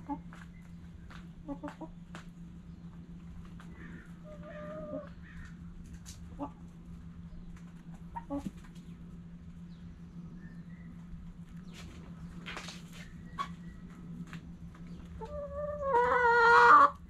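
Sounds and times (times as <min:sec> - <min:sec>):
hen clucking: 0:00.0 - 0:02.3, 0:03.5 - 0:07.0, 0:07.6 - 0:09.1, 0:12.8 - 0:17.0
steady low hum: 0:00.0 - 0:17.0
hen pecking taps: 0:00.1 - 0:02.4.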